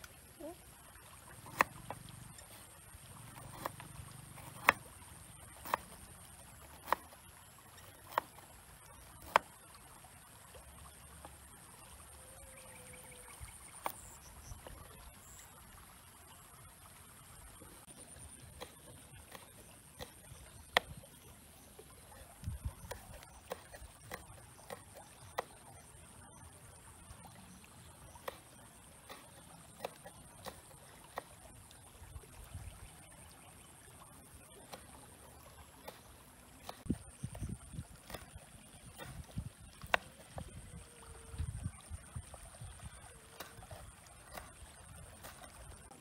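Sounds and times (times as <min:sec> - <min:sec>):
cleaver chopping on wooden board: 0:03.4 - 0:04.8, 0:06.7 - 0:07.1.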